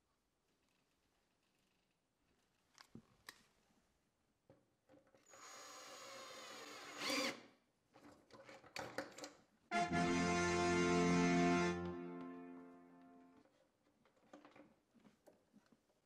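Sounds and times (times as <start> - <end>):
cordless drill driving screw: 5.3 - 7.5.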